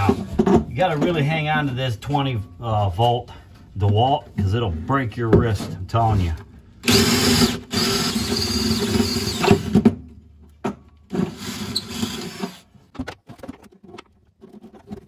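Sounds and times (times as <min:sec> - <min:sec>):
cordless drill boring through floor: 0:06.8 - 0:09.8, 0:11.1 - 0:12.7.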